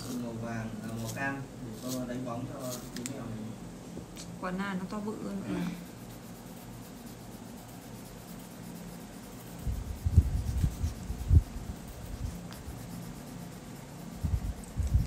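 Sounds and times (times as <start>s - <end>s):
faint steady hum: 0.0s - 15.0s
pencil shading on paper: 5.8s - 15.0s.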